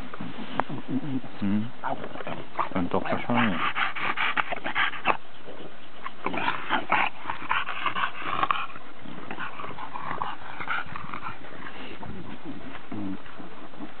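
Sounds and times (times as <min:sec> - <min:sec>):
dog making breathy sounds: 0:00.0 - 0:14.0.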